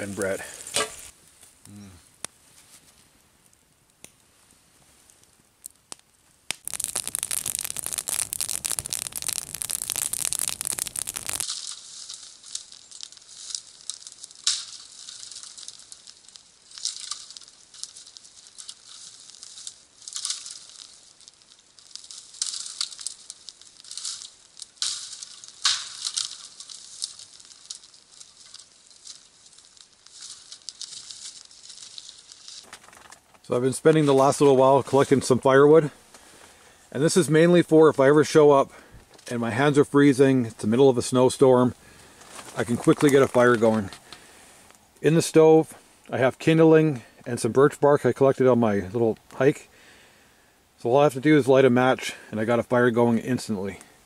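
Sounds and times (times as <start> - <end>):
dry branches snapping: 0.0 - 1.8, 5.6 - 35.4, 41.7 - 44.8
loud steady hiss: 6.6 - 13.8.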